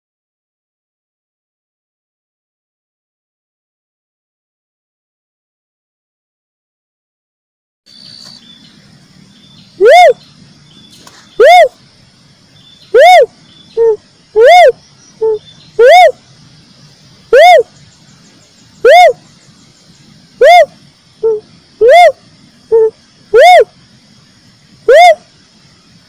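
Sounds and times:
dove call rising and falling: 9.7 - 10.2, 10.9 - 11.8, 12.9 - 16.2, 17.3 - 17.8, 18.7 - 19.3, 20.3 - 23.7, 24.9 - 25.3.

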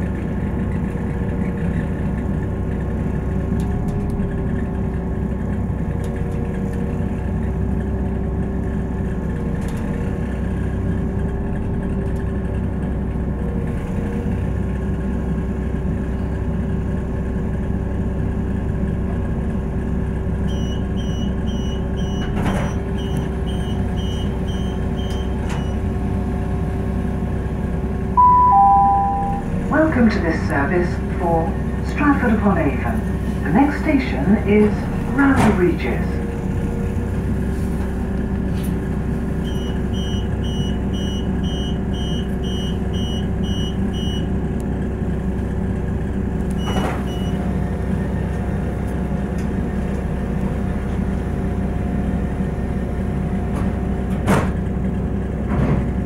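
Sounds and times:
train diesel engine idling: 0.0 - 56.0
two-note falling chime: 28.2 - 29.5.

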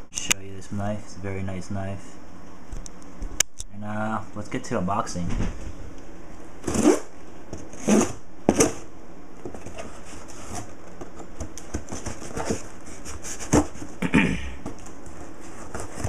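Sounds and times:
box flaps crackling: 9.4 - 14.0
cardboard knocks and scrapes: 9.4 - 14.0, 14.6 - 16.0.

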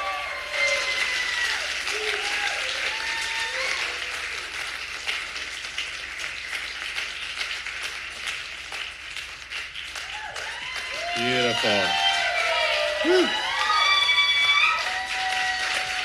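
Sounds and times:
shouted cheers: 0.0 - 4.3, 10.0 - 16.0
audience applauding: 0.0 - 16.0.

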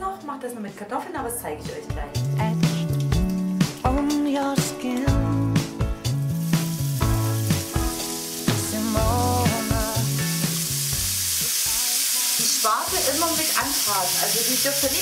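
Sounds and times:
background music: 0.0 - 15.0
bacon sizzling in a pan: 5.5 - 15.0.

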